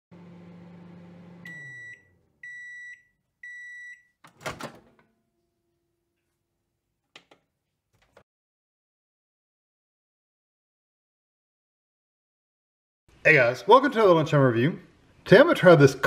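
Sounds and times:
microwave oven humming: 0.1s - 2.8s
microwave door opening clunk: 4.3s - 5.0s.

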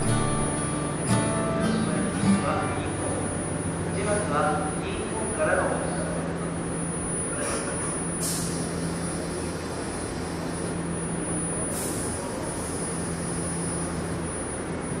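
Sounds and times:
tram running low hum: 0.0s - 3.9s.

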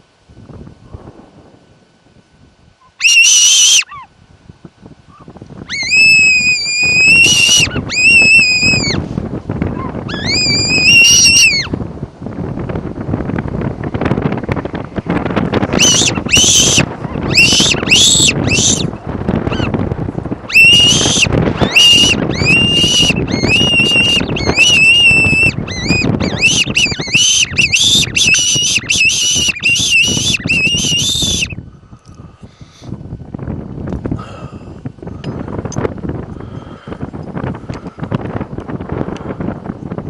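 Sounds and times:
fox whistle squealing: 2.8s - 4.1s, 5.7s - 9.0s, 9.8s - 11.7s, 15.7s - 18.9s, 19.5s - 19.7s, 20.5s - 31.6s.

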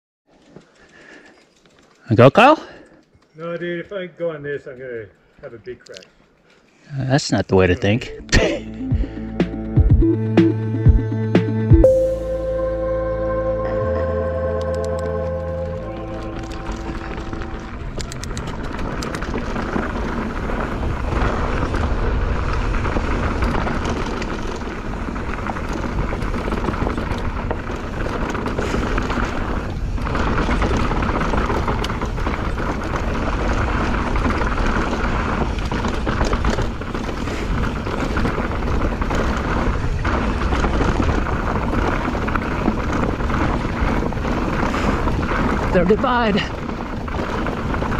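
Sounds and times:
tyres rumbling on dirt: 15.8s - 47.9s
bike rattling over bumps: 16.2s - 47.9s.

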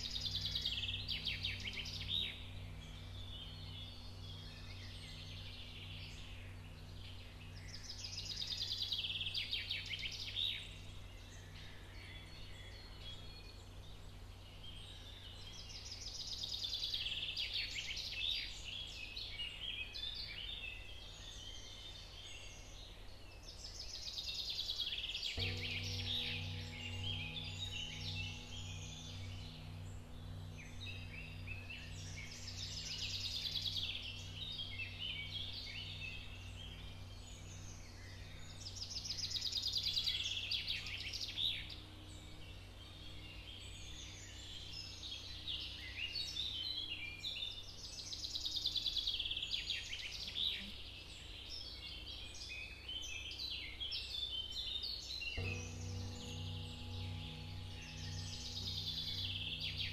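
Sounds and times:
low pulsing drone: 0.0s - 59.9s
dense chirping: 25.4s - 40.6s, 55.4s - 59.9s.

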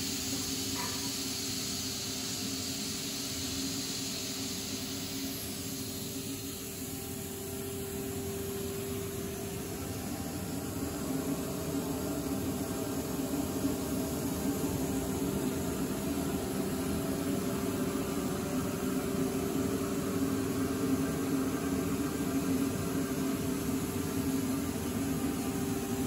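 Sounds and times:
even hiss: 0.0s - 12.0s
sandblasting cabinet running: 0.0s - 26.0s.

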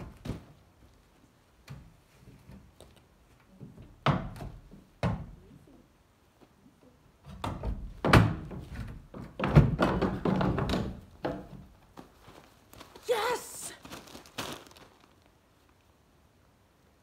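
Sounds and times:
shuffling: 11.8s - 15.9s.

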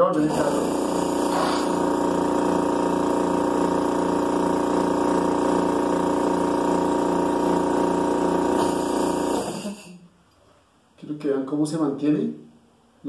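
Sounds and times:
air compressor pulsing hum: 0.0s - 10.1s.

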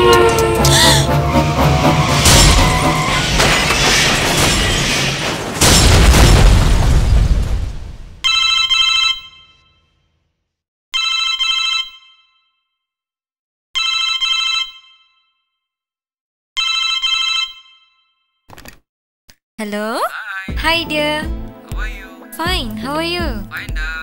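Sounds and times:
boom: 2.2s - 8.2s
telephone ringing: 11.0s - 12.5s, 13.8s - 15.2s, 16.6s - 18.0s.

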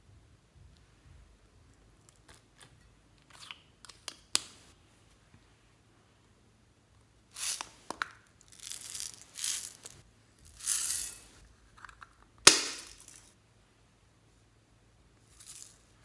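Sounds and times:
beads rattling and spilling: 7.3s - 7.8s, 8.4s - 11.4s, 12.6s - 13.3s, 15.2s - 15.9s.

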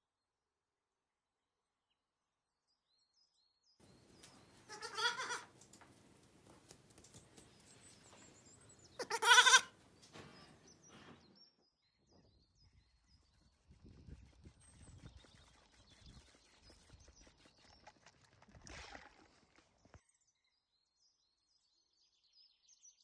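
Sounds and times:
lamb bleating: 4.6s - 5.5s, 9.0s - 9.8s.

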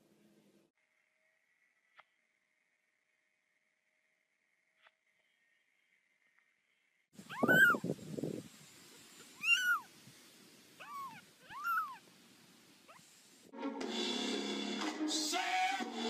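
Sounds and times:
kitten mewing: 7.2s - 7.9s, 9.4s - 9.9s, 10.8s - 12.0s.

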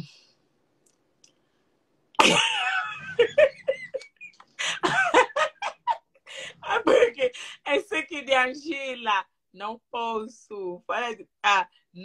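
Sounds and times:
woman laughing: 2.2s - 7.4s.

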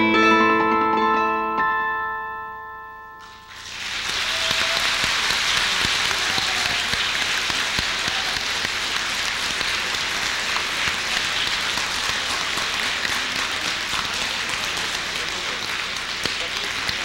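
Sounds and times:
held musical chord: 0.0s - 4.3s
audience applause: 3.3s - 17.0s.

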